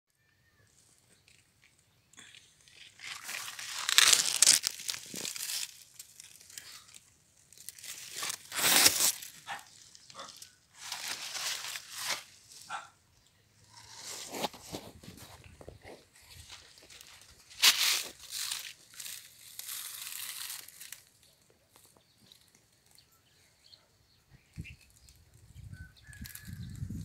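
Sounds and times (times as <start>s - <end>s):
short crinkling sounds: 0.6s - 12.8s, 13.7s - 23.1s
dry leaves rustling and crunching: 2.6s - 12.8s, 13.7s - 22.5s.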